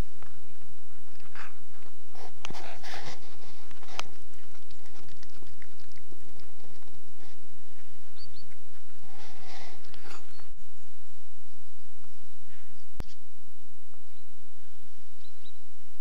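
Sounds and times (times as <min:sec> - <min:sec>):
pet chewing fish crunches: 0:01.1 - 0:08.7.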